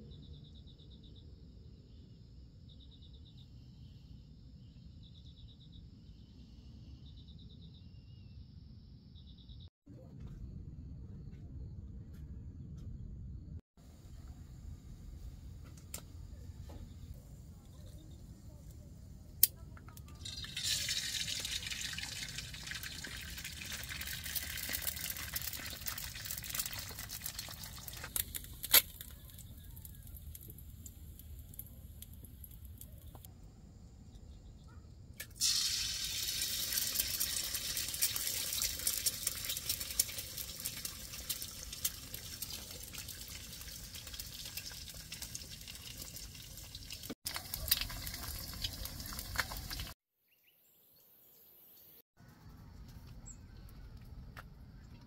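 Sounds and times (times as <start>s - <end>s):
food sizzling in a pan: 20.2s - 28.0s, 35.4s - 50.0s.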